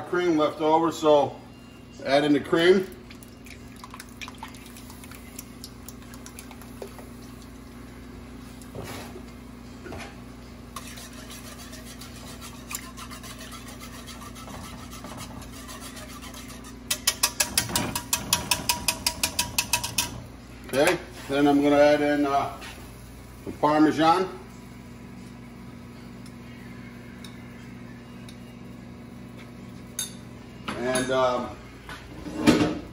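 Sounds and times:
wire whisk beating against pot: 10.8s - 20.3s
utensil clicking on pot: 16.9s - 20.2s.

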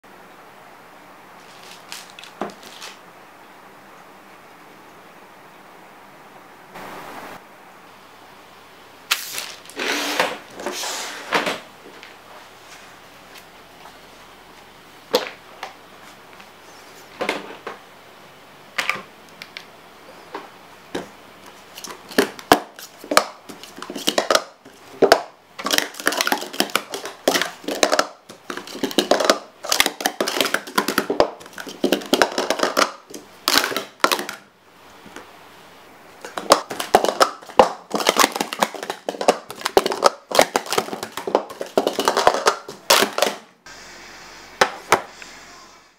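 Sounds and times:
plastic cups clacking: 21.8s - 34.5s, 36.2s - 43.5s.

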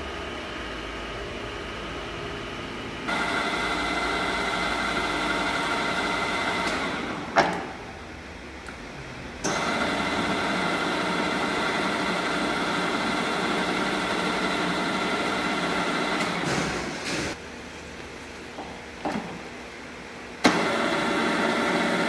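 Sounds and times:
drill press whine: 0.0s - 7.4s, 9.4s - 17.4s, 20.4s - 22.0s.

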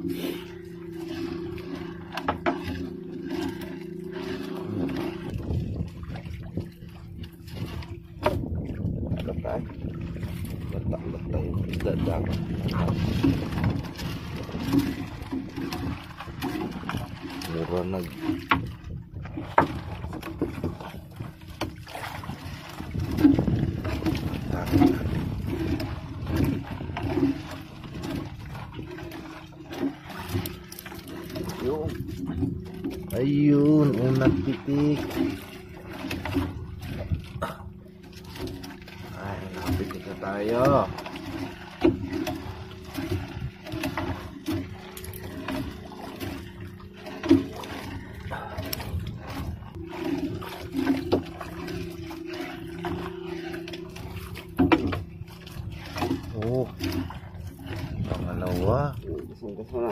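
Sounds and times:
low engine hum: 0.0s - 59.9s
knocks against boat hull: 8.2s - 8.8s.

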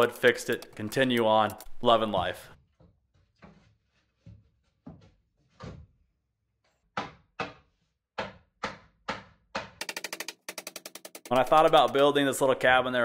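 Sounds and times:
hammer striking plywood: 6.9s - 12.0s.

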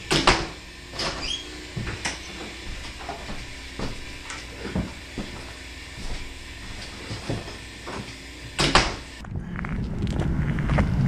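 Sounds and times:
wooden door shutting: 0.1s - 2.3s, 8.6s - 9.0s.

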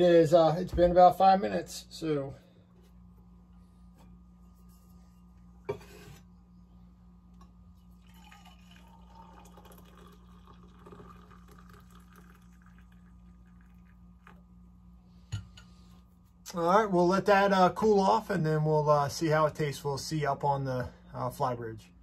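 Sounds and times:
coffee pouring into metal mug: 7.8s - 14.5s.

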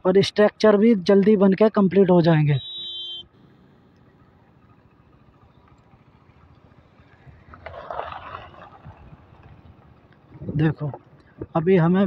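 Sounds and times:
car passing on gravel: 3.4s - 11.2s.

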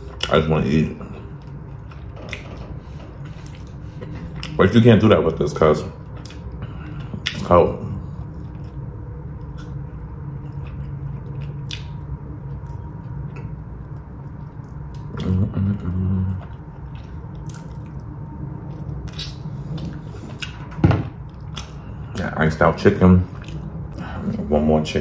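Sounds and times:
closed-mouth hum: 0.0s - 25.0s
wet lip smacks and chewing: 9.4s - 15.3s, 16.4s - 20.6s, 23.3s - 23.7s.

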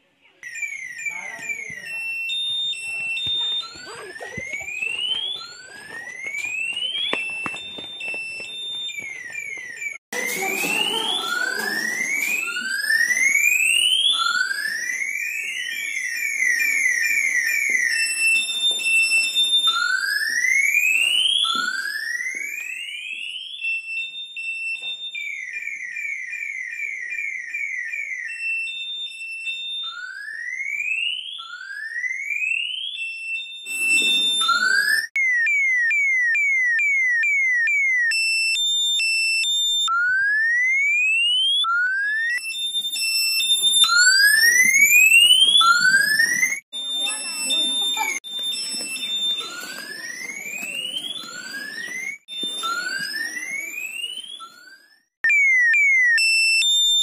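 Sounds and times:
rising siren whoops: 1.0s - 23.4s, 39.6s - 57.0s.

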